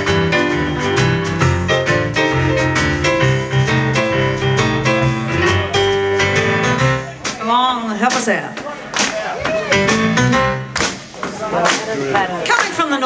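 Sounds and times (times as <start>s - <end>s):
electric bass line: 0.0s - 7.2s
electric piano: 0.0s - 7.4s, 9.2s - 10.8s
drums: 0.0s - 13.0s.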